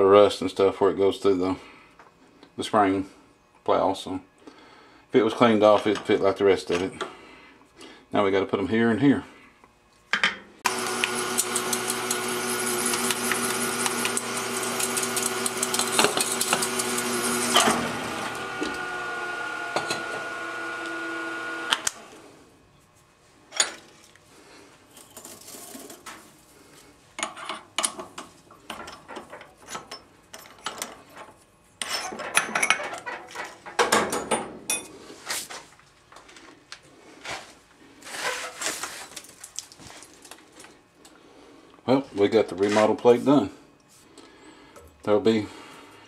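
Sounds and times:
drill motor running: 10.6s - 22.2s.

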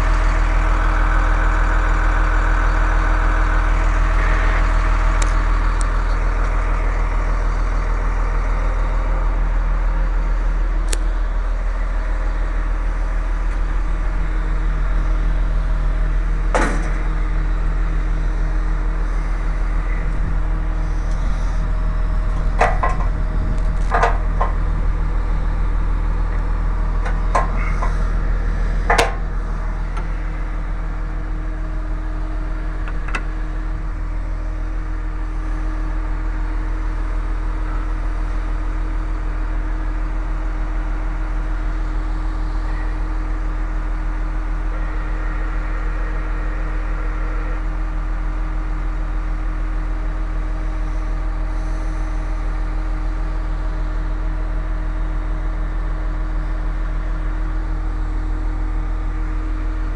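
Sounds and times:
heavy engine idling: 0.0s - 59.9s
metallic knocks and clanks: 22.5s - 23.2s, 28.9s - 29.2s.

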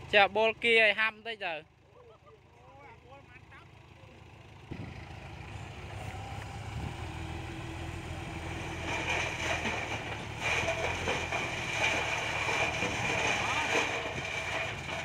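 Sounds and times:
diesel truck engine running: 0.0s - 15.0s
soil pouring and sliding: 8.7s - 15.0s.

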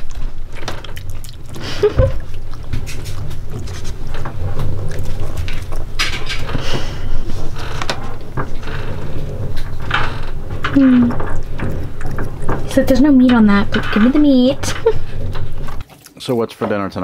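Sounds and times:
boat engine low rumble: 0.0s - 15.8s.

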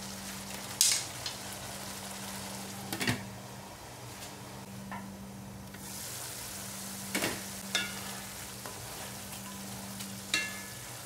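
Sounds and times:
sauce sizzling in a wok: 0.0s - 2.9s, 5.8s - 11.0s
wooden spatulas stirring: 7.7s - 10.8s.

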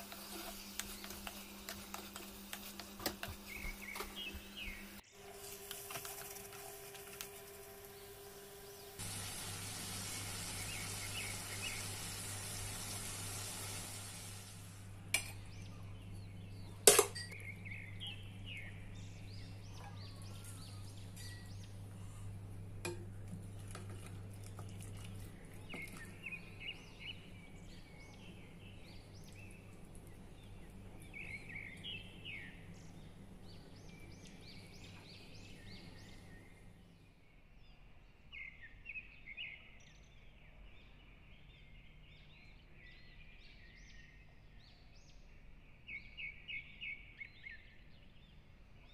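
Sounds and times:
small birds chirping: 0.0s - 5.2s, 7.8s - 14.4s, 15.3s - 22.5s, 24.3s - 48.9s
prawns sizzling in clay pot: 0.0s - 15.5s.

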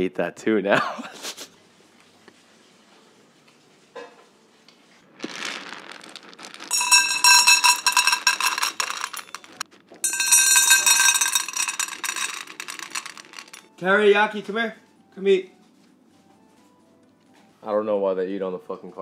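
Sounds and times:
kibble clattering into metal bowls: 6.6s - 13.7s.

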